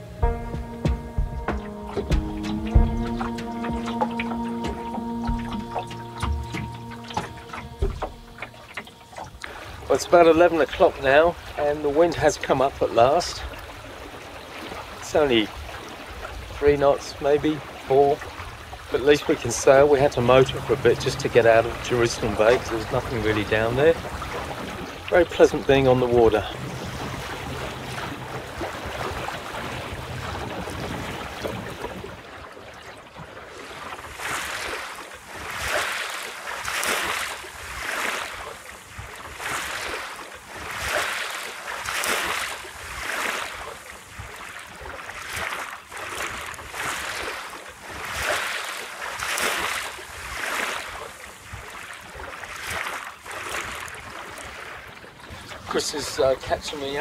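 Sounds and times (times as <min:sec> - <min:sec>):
water washing against hull: 0:00.0 - 0:57.0.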